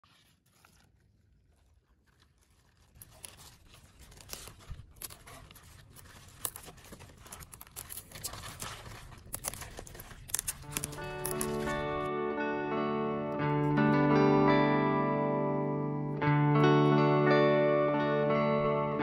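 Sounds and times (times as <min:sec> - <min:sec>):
leaves rustling in hands: 0:00.0 - 0:12.1
leaves snapping and tearing: 0:00.0 - 0:12.1.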